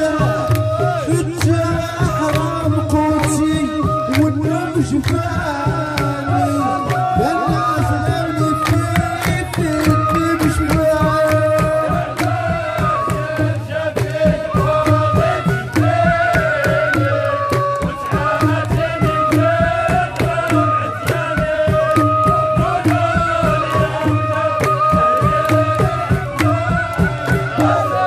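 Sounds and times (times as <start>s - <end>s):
hand clapping: 0.5s - 3.5s, 4.1s - 12.5s, 15.7s - 21.2s, 21.9s - 23.1s, 24.0s - 27.7s.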